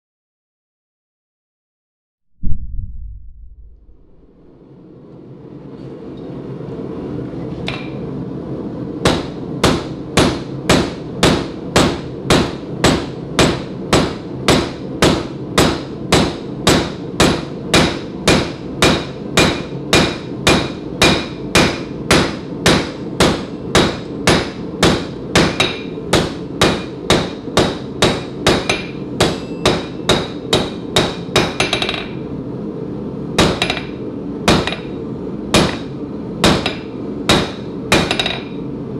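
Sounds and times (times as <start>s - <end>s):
low rushing noise: 2.4s - 5.0s
hammer striking hot metal on anvil: 9.0s - 32.2s, 33.4s - 38.7s.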